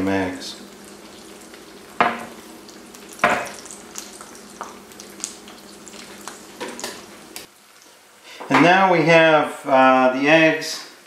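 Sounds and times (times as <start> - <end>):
eggs sizzling with pops: 0.5 - 8.2.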